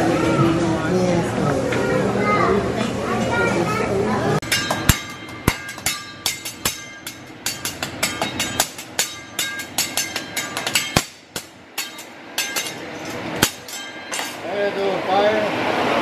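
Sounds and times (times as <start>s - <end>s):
metal spatulas clacking on griddle: 4.4s - 14.4s.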